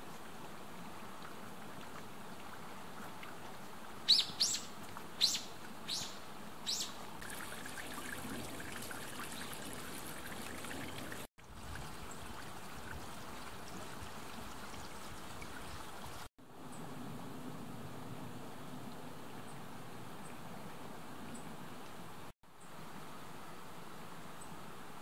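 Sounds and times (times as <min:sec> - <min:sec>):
bird calling high downward calls: 0:04.1 - 0:07.0.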